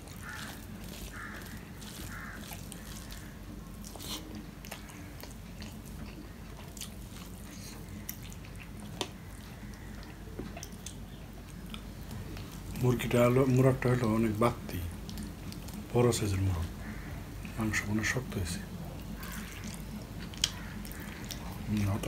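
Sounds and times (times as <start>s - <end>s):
wet chewing and mouth smacking: 0.0s - 15.9s, 18.6s - 22.0s
fingers squishing rice: 0.0s - 16.2s
steady low hum: 0.0s - 22.0s.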